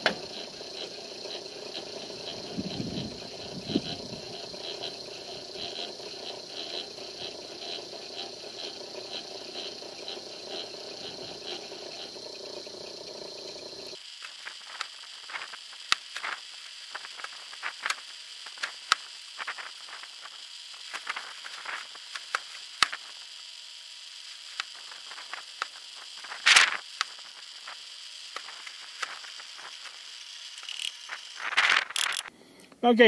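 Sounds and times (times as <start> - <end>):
drill press drilling steel: 0.0 - 14.0.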